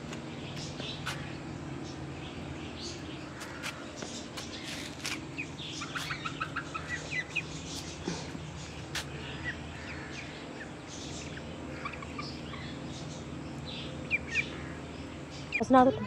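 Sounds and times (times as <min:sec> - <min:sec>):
steady low hum: 0:00.0 - 0:16.0
hens and ducks calling: 0:02.9 - 0:16.0.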